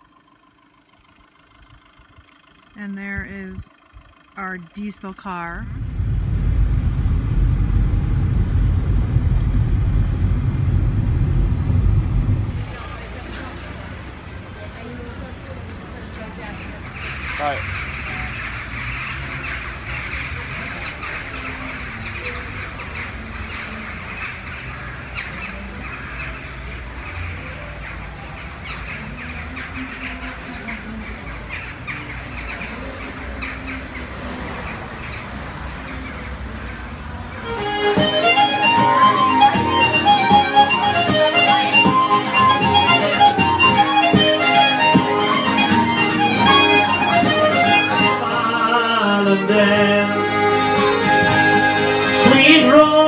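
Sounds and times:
crows calling: 0.0s - 5.7s, 16.1s - 51.3s
low rumble: 0.8s - 14.3s
accordion and guitar folk music: 37.3s - 53.0s.

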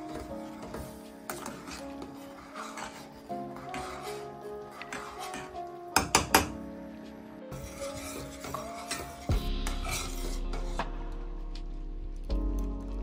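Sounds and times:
background music: 0.0s - 13.0s
metal spoon scraping saucepan: 0.1s - 6.2s, 7.5s - 10.8s.

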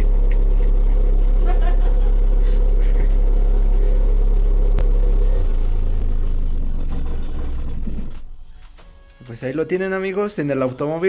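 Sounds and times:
subwoofers playing deep test tone: 0.0s - 7.3s.

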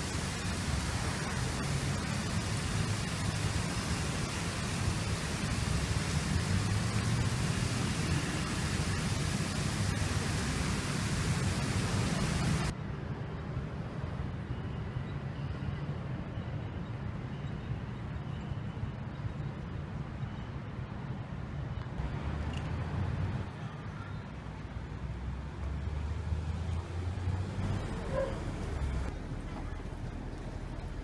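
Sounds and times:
water cascading down fountain: 0.0s - 12.7s
city street traffic hum: 0.0s - 31.0s.

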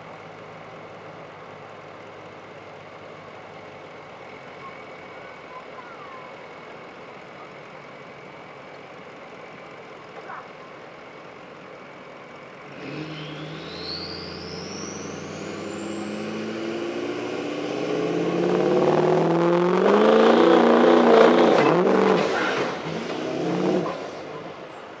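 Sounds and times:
diesel engine under load: 0.0s - 25.0s
turbo whistle rising: 13.0s - 19.6s.

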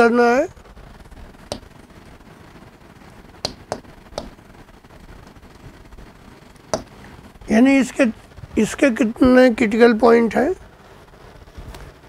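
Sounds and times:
chalk tapping on blackboard: 1.5s - 1.7s, 3.4s - 4.4s, 6.7s - 6.9s.

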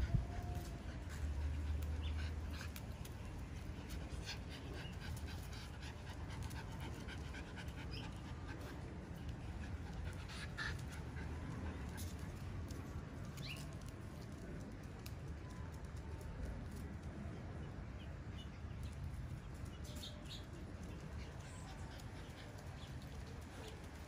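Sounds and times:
dog panting: 0.6s - 12.9s, 20.8s - 24.0s.

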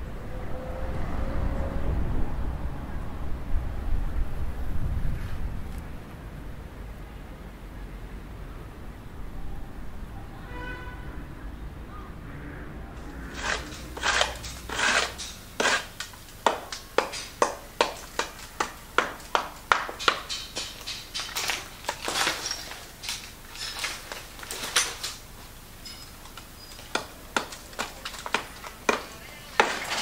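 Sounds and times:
hand tool scraping plaster wall: 13.0s - 18.3s.

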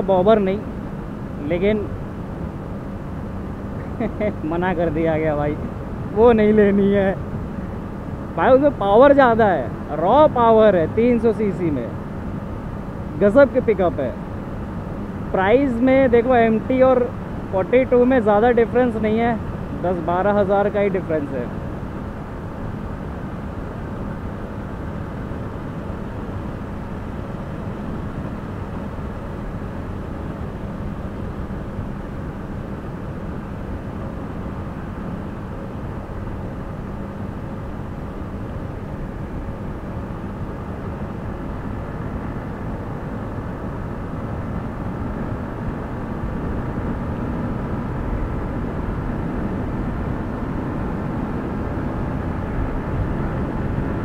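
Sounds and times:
wind rushing over microphone: 21.5s - 54.0s
motorcycle engine cruising: 25.6s - 54.0s.

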